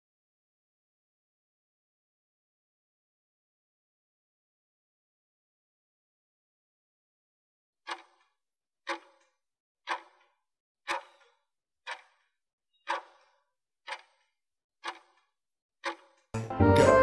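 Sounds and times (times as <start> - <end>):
timer ticking: 7.9 - 8.3, 8.9 - 9.3, 9.9 - 10.3, 10.9 - 11.3, 11.9 - 17.0.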